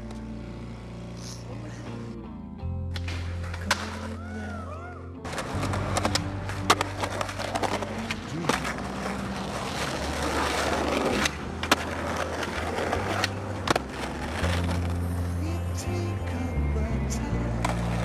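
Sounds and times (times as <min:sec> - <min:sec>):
skateboard wheels rolling: 0:05.2 - 0:16.5, 0:17.3 - 0:18.0
skateboard clacks: 0:05.3 - 0:15.0.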